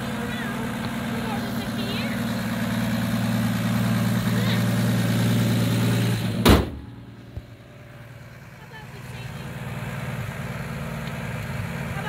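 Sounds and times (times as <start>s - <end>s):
car engine idling: 0.0s - 12.0s
car hood slamming shut: 6.3s - 7.0s.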